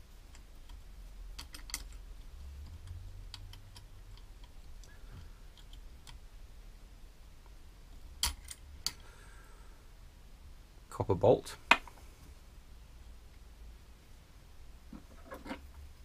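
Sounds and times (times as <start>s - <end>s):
metal parts clicking and tapping: 0.3s - 6.2s, 8.2s - 9.0s.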